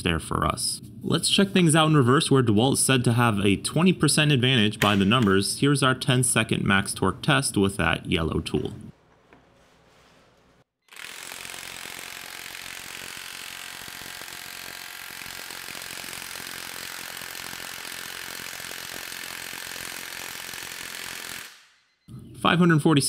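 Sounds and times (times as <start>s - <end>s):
impact wrench hammering: 4.8s - 5.4s.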